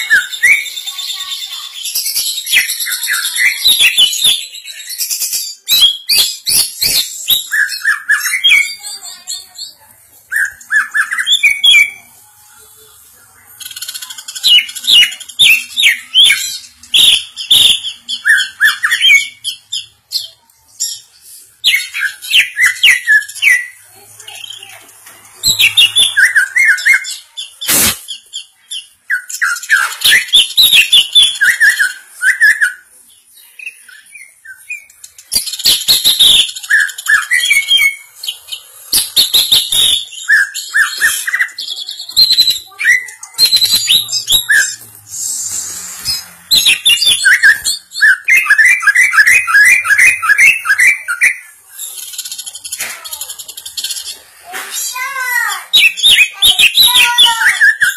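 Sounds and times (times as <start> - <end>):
bird singing rapid chirps: 25.3 - 54.2, 55.0 - 57.9.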